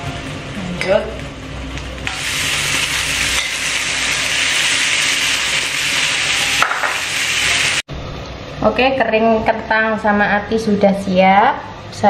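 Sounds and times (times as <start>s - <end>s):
chicken sizzling on grill stone: 1.7s - 7.9s.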